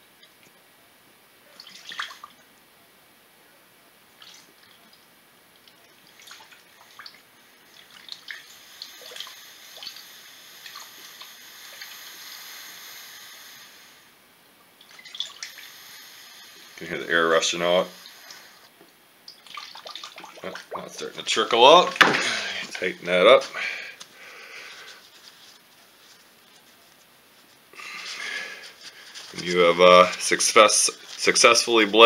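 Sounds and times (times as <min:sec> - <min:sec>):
liquid pouring hiss: 0:05.6 - 0:14.2, 0:14.8 - 0:32.0
coolant dripping and splashing: 0:06.1 - 0:12.0, 0:14.8 - 0:15.7, 0:19.3 - 0:22.9.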